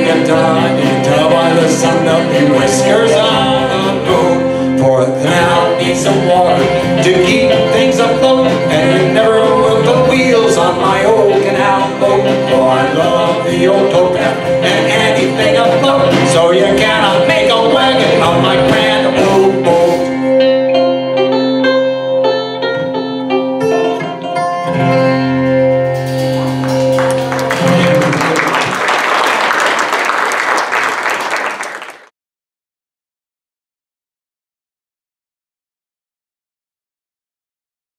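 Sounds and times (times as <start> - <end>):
live folk band playing: 0.0 - 28.7
audience applause: 26.4 - 32.1.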